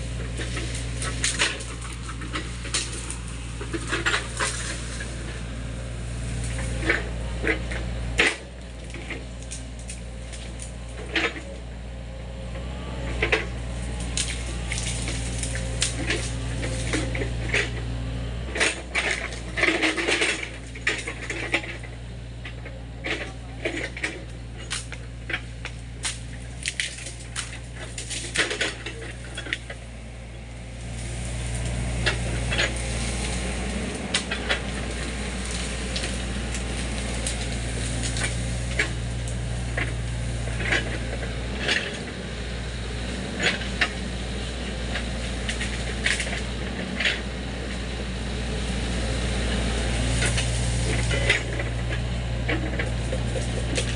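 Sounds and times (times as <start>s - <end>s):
excavator diesel engine running: 0.0s - 53.9s
wood cracking and snapping: 0.3s - 5.3s, 14.0s - 17.7s, 24.6s - 29.8s, 30.8s - 40.4s.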